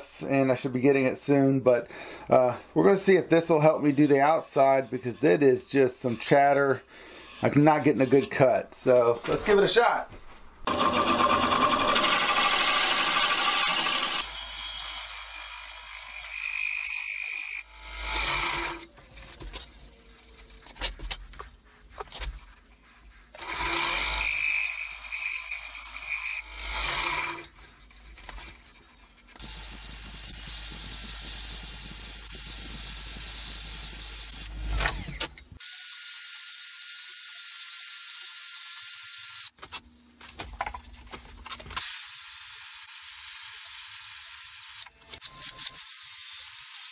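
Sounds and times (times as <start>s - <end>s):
lathe running: 10.7s - 14.4s
gouge cutting wood on lathe: 10.7s - 19.4s, 23.3s - 35.1s.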